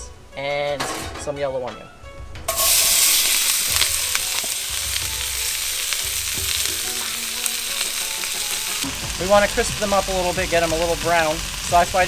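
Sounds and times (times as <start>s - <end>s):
vegetables sizzling in hot oil: 2.5s - 12.0s.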